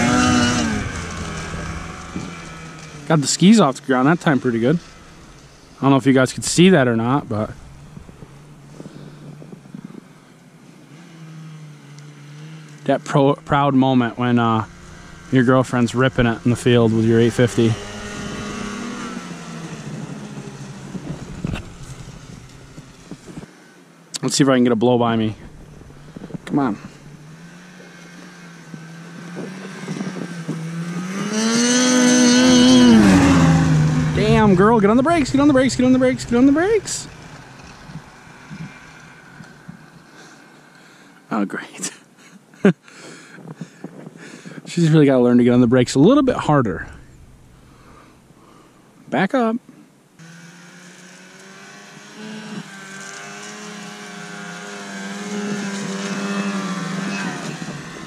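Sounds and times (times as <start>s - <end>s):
snowmobile engine approaching: 0.0s - 41.6s, 43.2s - 48.9s, 50.2s - 58.0s.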